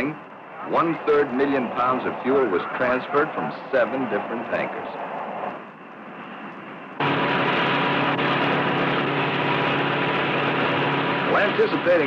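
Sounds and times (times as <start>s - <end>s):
faint soundtrack hiss: 0.0s - 7.1s
engine drone: 0.0s - 12.0s.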